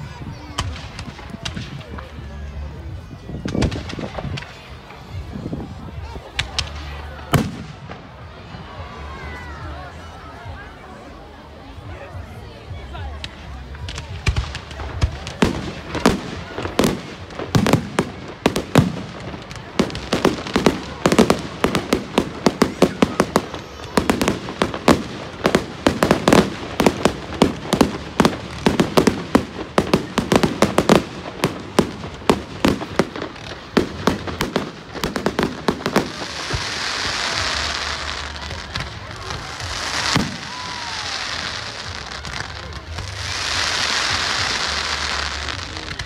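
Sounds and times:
fireworks hissing crackle: 0.0s - 9.7s, 13.1s - 46.0s
fireworks banging: 13.2s - 46.0s.

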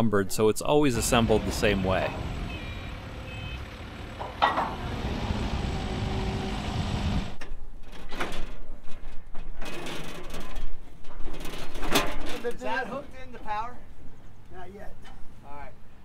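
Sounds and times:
forklift engine running: 1.0s - 7.4s
metal knocks and clanks: 3.9s - 5.0s.

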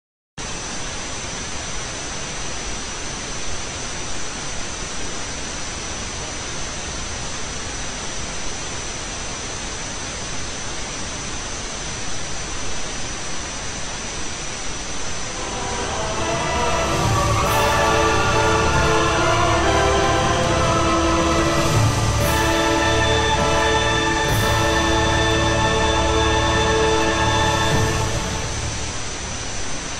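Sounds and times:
static hiss: 0.4s - 29.9s
thin high whine: 14.3s - 29.9s
music: 15.2s - 29.1s.

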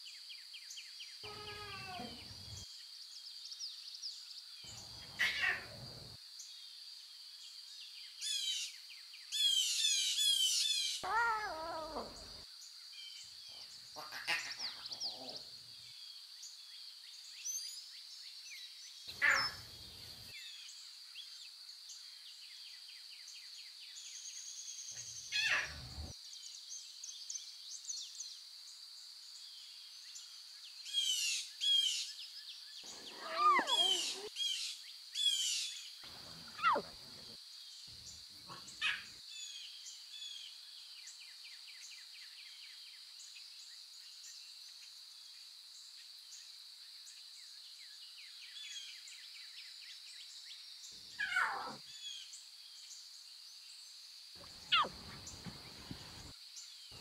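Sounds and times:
birds calling: 4.7s - 6.2s, 13.5s - 15.5s, 19.1s - 20.2s, 25.0s - 26.1s, 32.8s - 37.4s, 54.4s - 56.3s.

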